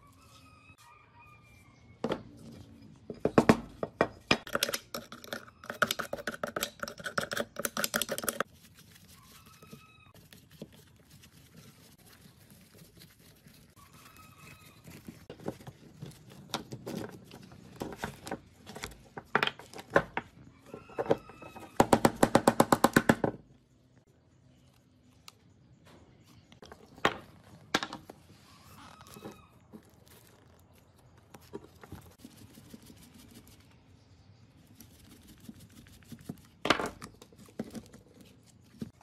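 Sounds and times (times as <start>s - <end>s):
clicks and scrapes: 4.3s - 21.8s.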